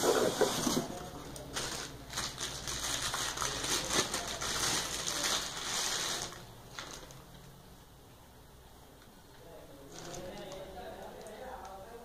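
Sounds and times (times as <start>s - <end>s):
cardboard rustling and scraping: 0.0s - 2.3s.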